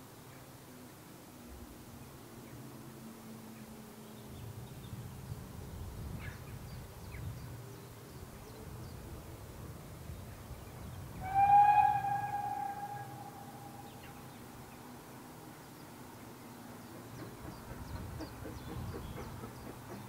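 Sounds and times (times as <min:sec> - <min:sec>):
steam whistle: 0:11.2 - 0:14.1
faint bird chirps: 0:11.2 - 0:15.0.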